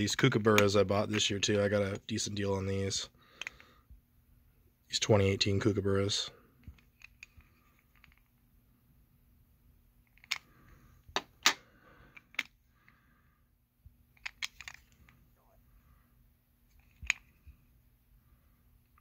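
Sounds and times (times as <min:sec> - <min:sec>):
plastic capsule clicking: 0:14.2 - 0:15.2.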